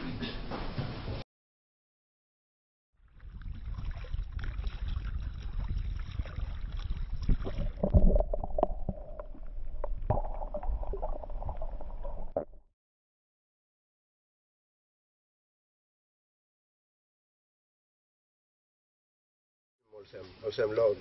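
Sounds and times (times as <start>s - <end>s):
wind rumbling on microphone: 3.0s - 12.6s.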